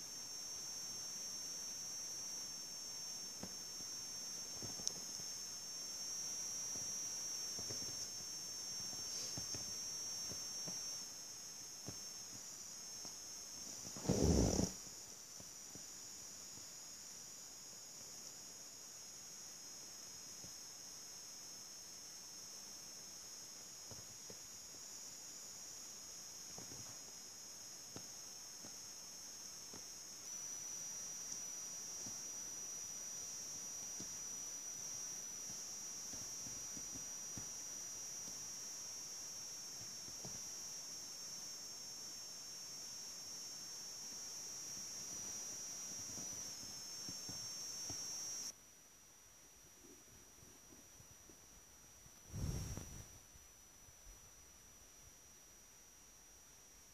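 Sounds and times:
high-pitched hiss: 0.0s - 48.6s, 49.7s - 56.9s
steady high whine: 0.0s - 48.6s
hand rubbing cat fur: 14.0s - 14.7s, 52.3s - 53.1s.

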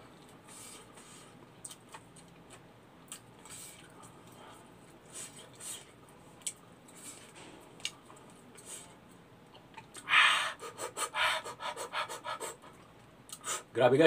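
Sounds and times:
man eating mouth sounds: 0.2s - 13.7s
quick loud huffing breaths: 10.0s - 12.8s.

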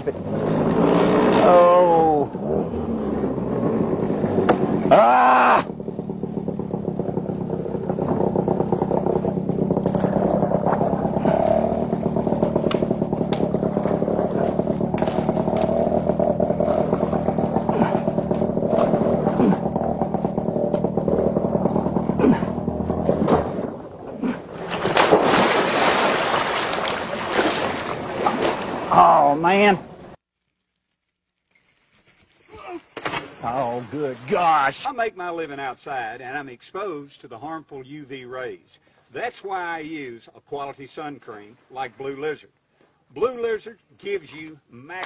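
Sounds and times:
outboard motor running: 0.0s - 29.1s
water splashing: 3.9s - 30.1s, 31.8s - 35.1s.

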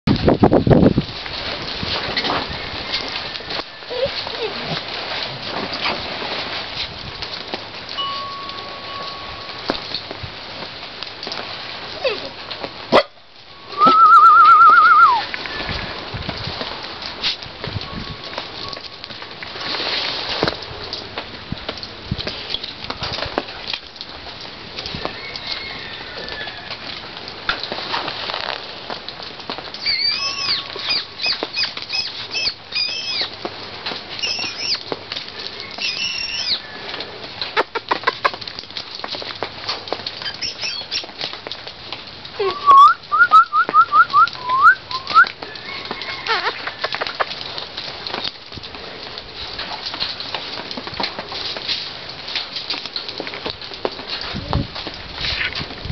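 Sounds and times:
rain pattering: 0.0s - 55.9s
whistled trill: 13.8s - 15.2s, 29.8s - 33.3s, 34.2s - 34.8s, 35.8s - 36.6s, 42.6s - 45.3s
puppy yipping: 29.8s - 33.3s, 34.2s - 34.8s, 35.8s - 36.6s, 40.2s - 41.1s.

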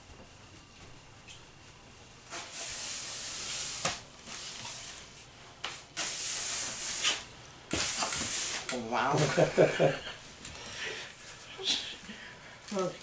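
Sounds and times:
aerosol spray can hissing: 6.0s - 8.7s.

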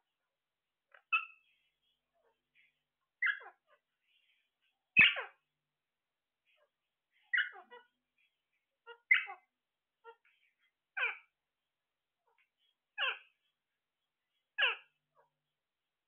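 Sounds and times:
parakeets squawking: 3.2s - 3.6s, 5.0s - 5.4s, 7.2s - 8.0s, 8.8s - 11.3s, 13.0s - 13.4s, 14.6s - 14.9s.

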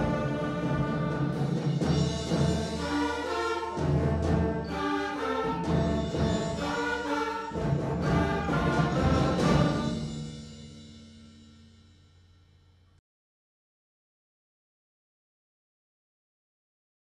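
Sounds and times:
concert band playing: 0.0s - 10.7s.

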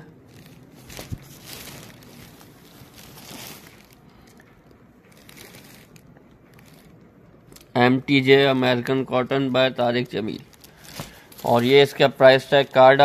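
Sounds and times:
fabric rustling: 0.1s - 7.6s, 10.1s - 12.8s
plastic wrapping crinkling: 0.2s - 7.7s, 10.0s - 13.0s.

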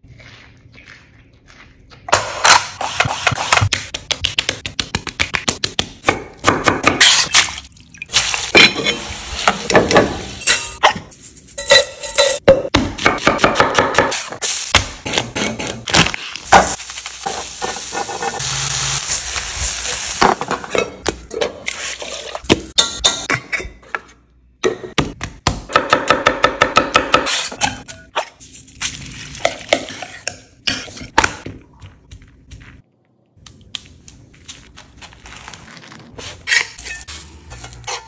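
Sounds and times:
food sizzling in a frying pan: 16.6s - 20.5s.

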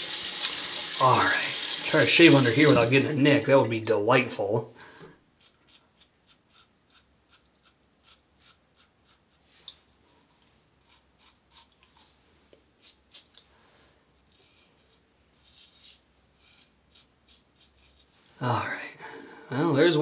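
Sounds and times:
razor scraping stubble: 5.4s - 9.6s, 10.8s - 12.2s, 12.8s - 13.4s, 14.2s - 18.2s.

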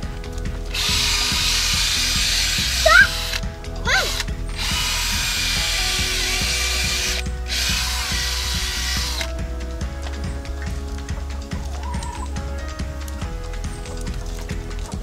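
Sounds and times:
cordless drill running: 0.7s - 9.3s.

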